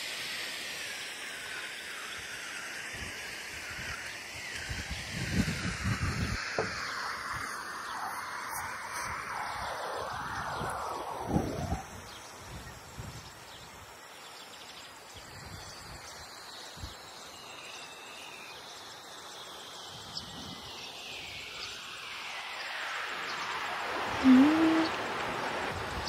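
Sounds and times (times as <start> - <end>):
outdoor background noise: 0.0 - 26.0.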